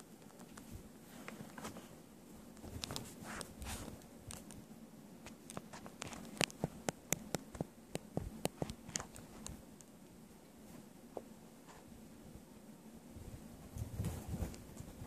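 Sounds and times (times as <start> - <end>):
soft rustling: 0.1 - 12.0, 13.2 - 15.0
sharp clicks and taps: 5.2 - 10.0.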